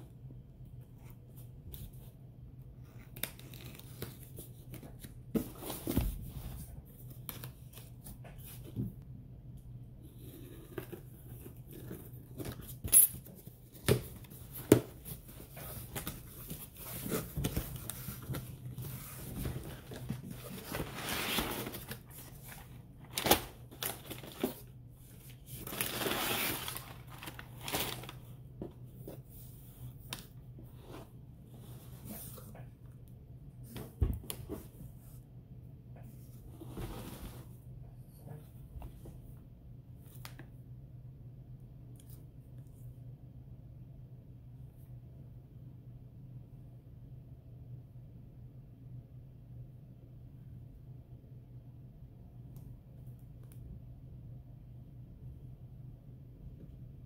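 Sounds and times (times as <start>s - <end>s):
cardboard flaps scraping and rustling: 14.3s - 24.7s.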